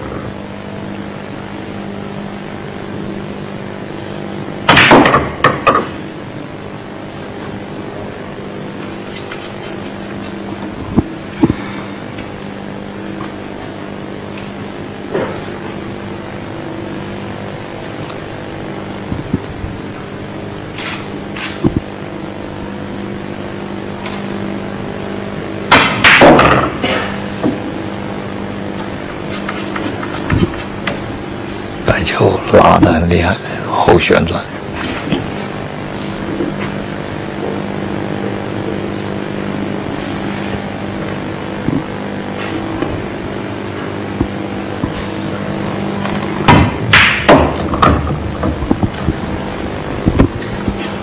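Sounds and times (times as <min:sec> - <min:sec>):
low hum: 0:00.0 - 0:51.0
pool cue striking ball: 0:46.4 - 0:48.6.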